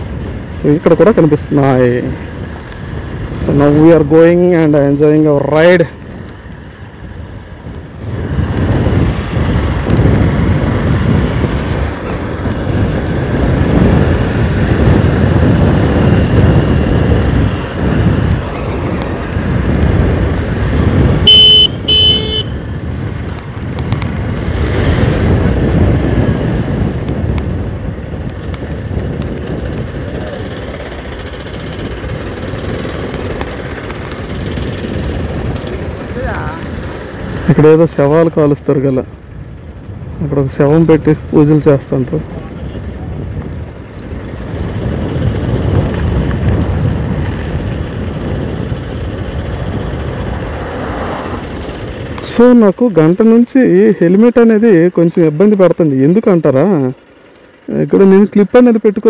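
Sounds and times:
motorcycle engine running: 0:00.0 - 0:59.0
wind and road noise: 0:00.0 - 0:59.0
horn honking: 0:21.2 - 0:22.7.

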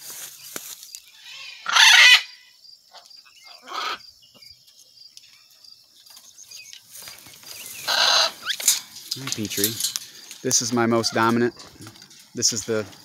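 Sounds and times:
parrot squawking: 0:01.2 - 0:02.5, 0:03.5 - 0:04.0, 0:07.8 - 0:08.7.

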